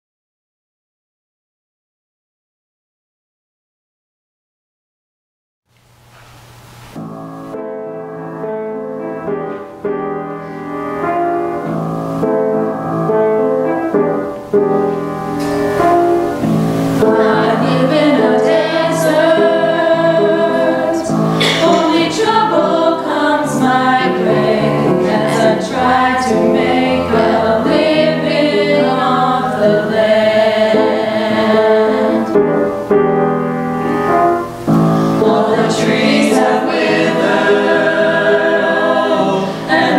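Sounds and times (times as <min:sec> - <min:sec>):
mixed choir singing: 0:16.9 - 0:32.7, 0:34.9 - 0:39.9.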